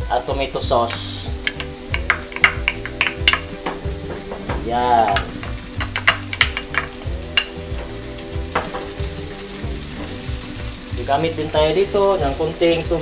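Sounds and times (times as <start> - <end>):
frying sizzle: 0.0 - 13.0
wooden spoon knocking and scraping: 0.9 - 9.3.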